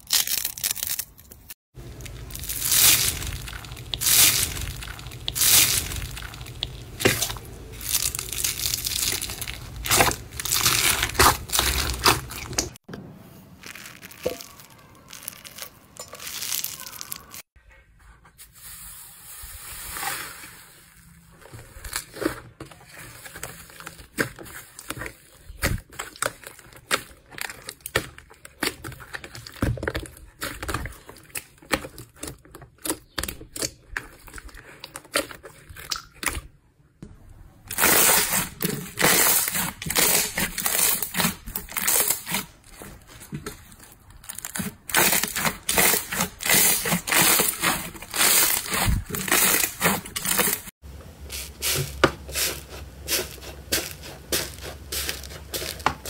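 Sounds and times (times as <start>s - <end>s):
slime crackling and popping: 0.0s - 12.8s, 13.6s - 17.5s.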